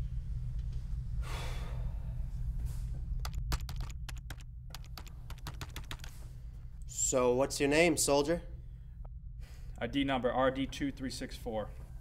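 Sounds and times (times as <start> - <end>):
low hum: 0.0 - 12.0
computer keyboard typing: 3.2 - 6.2.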